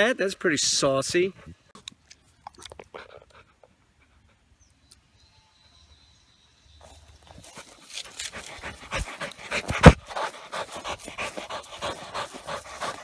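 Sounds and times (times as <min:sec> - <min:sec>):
dog panting rapidly: 0:07.6 - 0:13.0.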